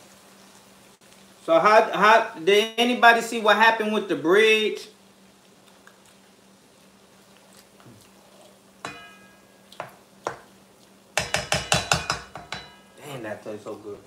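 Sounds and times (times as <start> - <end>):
wooden spoon knocking on pot: 8.8 - 10.5, 11.2 - 12.9.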